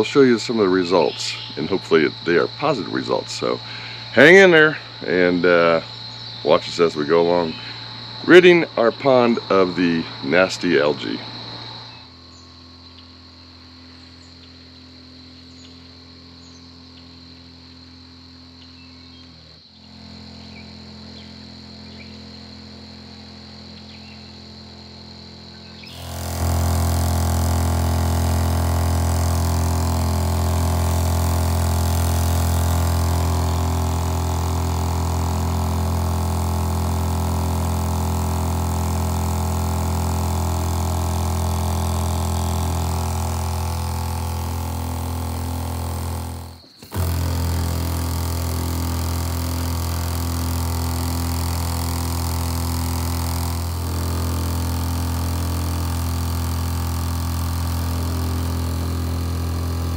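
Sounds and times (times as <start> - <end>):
sprayer pump droning: 0.0 - 11.9, 19.2 - 59.9
spray wand hissing: 25.9 - 59.9.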